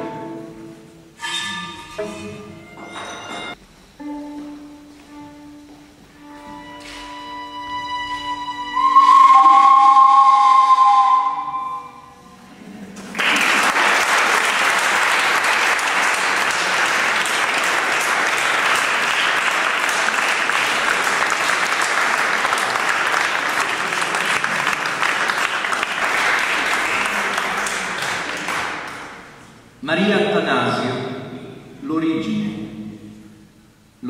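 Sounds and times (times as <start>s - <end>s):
small wind instruments notes: 0.0s - 12.5s
audience applauding: 13.0s - 29.4s.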